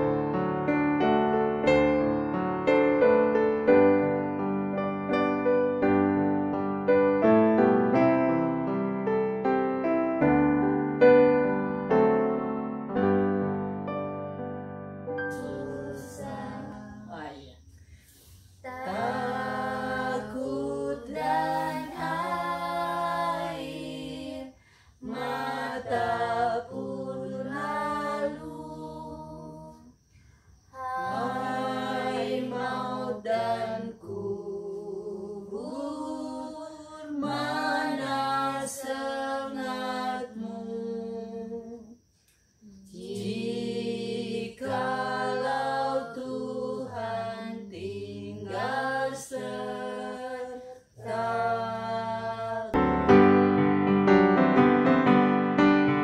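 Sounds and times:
person singing unaccompanied: 15.2s - 17.7s, 18.6s - 29.9s, 30.7s - 42.0s, 42.7s - 52.8s.

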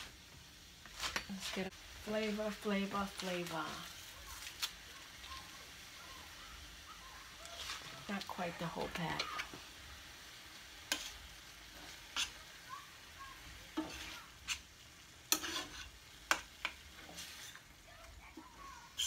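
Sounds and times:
meat sizzling: 0.0s - 19.0s
spoon scraping a pan: 7.2s - 9.7s, 10.5s - 12.6s, 13.4s - 19.0s.

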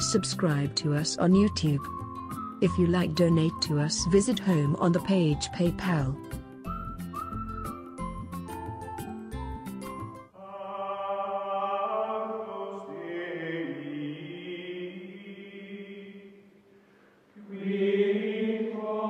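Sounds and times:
choir chanting held notes: 10.4s - 16.5s, 17.4s - 19.0s.

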